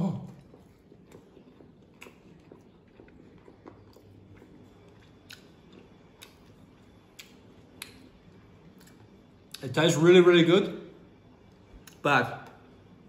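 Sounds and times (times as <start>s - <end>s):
faint chewing: 0.0s - 9.7s.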